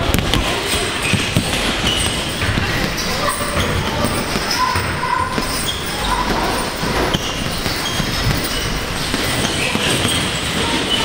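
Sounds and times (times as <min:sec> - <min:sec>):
gym background noise: 0:00.0 - 0:11.0.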